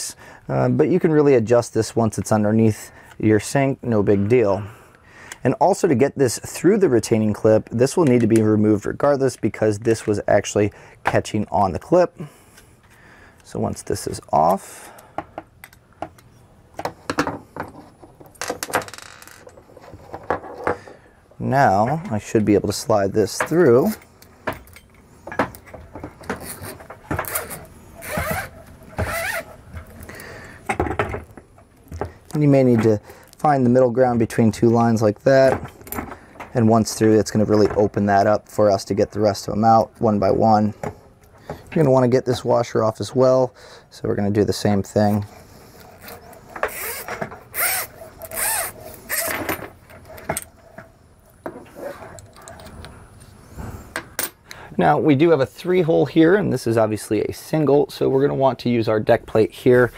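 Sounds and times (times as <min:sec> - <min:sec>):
hoses scraping against metal: 0:21.7 - 0:30.1, 0:44.9 - 0:50.6.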